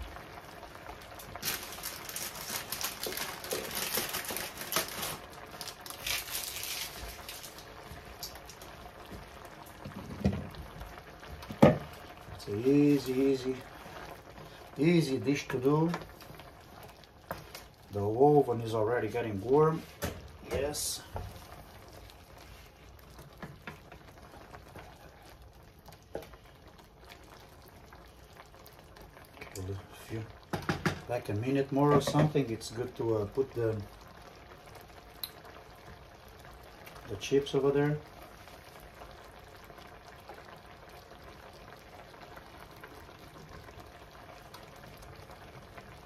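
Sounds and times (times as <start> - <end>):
cream sauce bubbling: 0.0 - 46.0
wooden spoon stirring sauce: 12.6 - 18.1.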